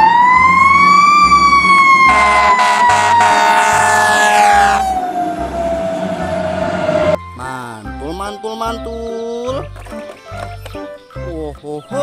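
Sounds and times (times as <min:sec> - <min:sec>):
fire engine siren: 0:00.0 - 0:07.2
truck horn blasting: 0:01.8 - 0:05.0.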